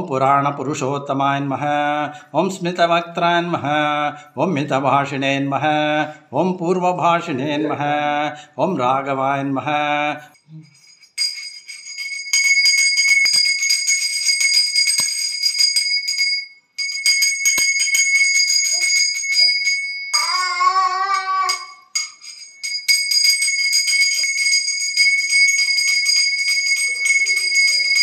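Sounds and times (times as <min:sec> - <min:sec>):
hand bell ringing rapidly: 0:10.6 - 0:28.0.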